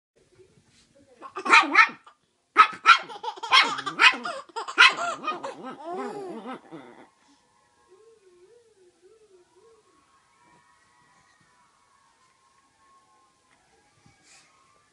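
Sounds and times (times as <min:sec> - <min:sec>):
small dog yapping: 0:01.4 - 0:06.1
baby laughing: 0:02.9 - 0:06.4.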